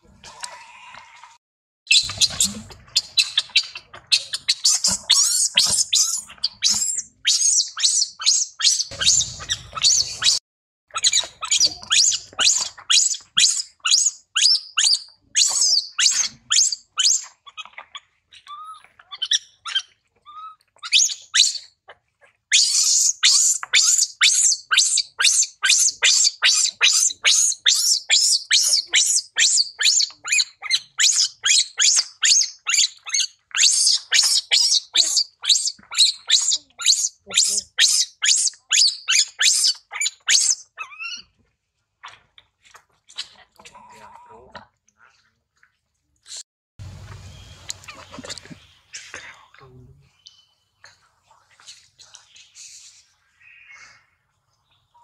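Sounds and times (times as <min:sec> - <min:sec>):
baby monkey squealing: 0:01.9 - 0:21.7, 0:22.5 - 0:41.3.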